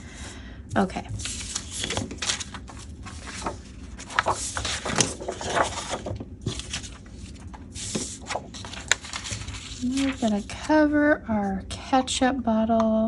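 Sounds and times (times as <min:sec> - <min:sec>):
magazine paper rustling: 0:01.1 - 0:10.7.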